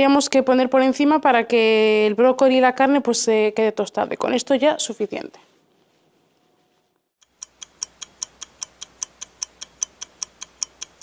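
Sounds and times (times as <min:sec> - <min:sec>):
clock ticking: 0:07.2 - 0:11.0.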